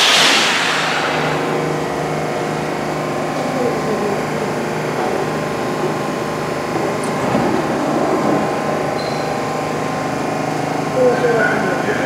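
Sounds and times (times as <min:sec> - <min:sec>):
train rumble: 0:00.0 - 0:02.8
subway train equipment humming: 0:00.0 - 0:10.4.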